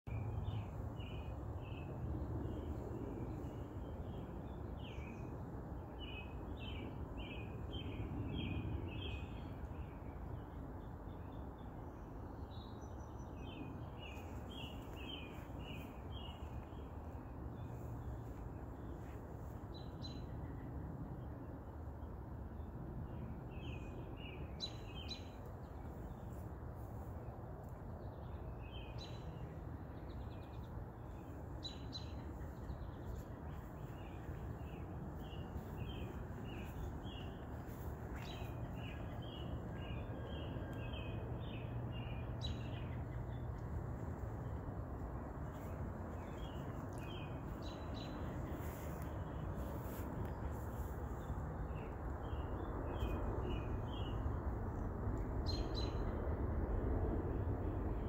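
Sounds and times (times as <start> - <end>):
low background noise: 0.1 - 58.0
small birds chirping: 23.9 - 54.4.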